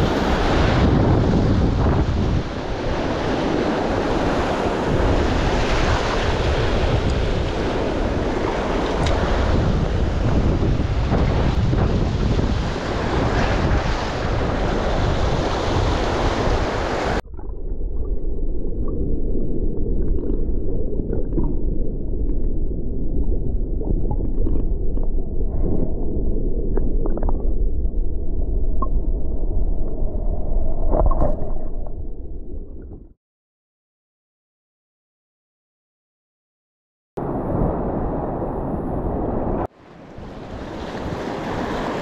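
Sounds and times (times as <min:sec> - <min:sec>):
sea surf: 0:00.0 - 0:17.2, 0:37.2 - 0:42.0
wind buffeting microphone: 0:00.0 - 0:17.2
muffled underwater rush: 0:00.0 - 0:33.2
small bubbling clicks: 0:19.8 - 0:22.6, 0:23.8 - 0:25.7, 0:26.7 - 0:27.6.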